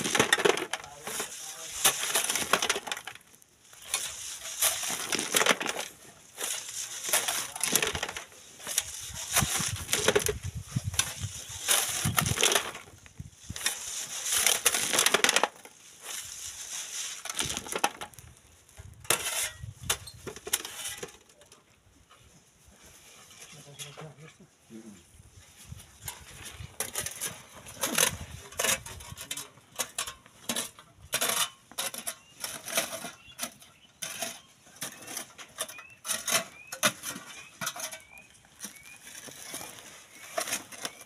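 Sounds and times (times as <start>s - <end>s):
shovel scraping sand and gravel: 0.0s - 21.2s, 25.3s - 41.0s
sand hissing through mesh: 15.8s - 17.3s.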